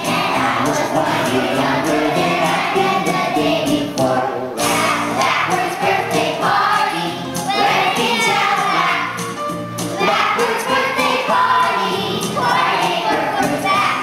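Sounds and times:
children's choir singing: 0.0s - 14.0s.

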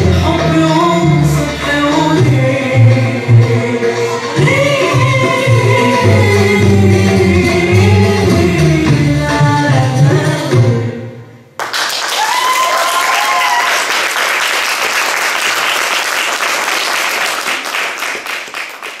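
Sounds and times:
recorded music: 0.0s - 11.5s
audience applauding: 11.6s - 19.0s.

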